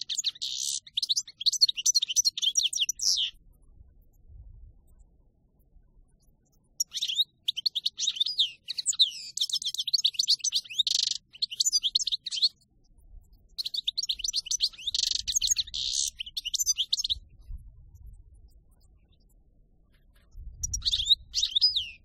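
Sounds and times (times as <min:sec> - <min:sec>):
goldfinch singing: 0:00.0 - 0:03.4, 0:06.8 - 0:12.6, 0:13.6 - 0:17.3, 0:20.6 - 0:22.0.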